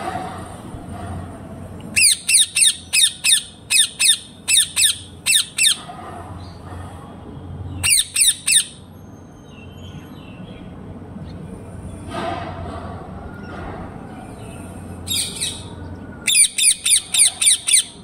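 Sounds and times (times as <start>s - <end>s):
parrot squawking: 1.9s - 5.9s, 7.8s - 8.8s, 16.3s - 18.0s.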